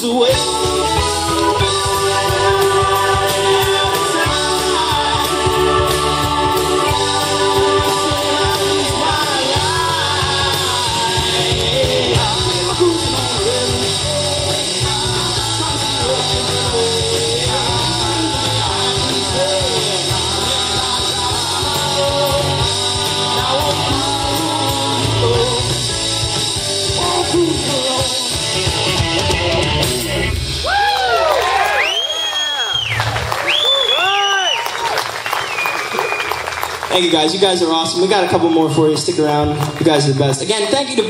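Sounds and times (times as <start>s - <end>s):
man singing: 0.0s - 30.4s
keyboard: 0.0s - 30.6s
bass guitar: 0.0s - 31.9s, 36.4s - 41.0s
electric guitar: 0.0s - 31.9s
drums: 0.0s - 41.0s.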